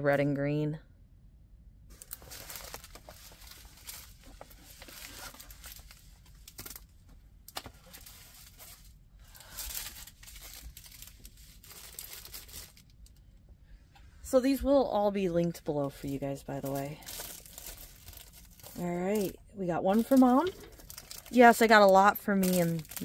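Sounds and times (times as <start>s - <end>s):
packaging crinkling and rustling: 1.9s - 13.2s, 15.8s - 23.0s.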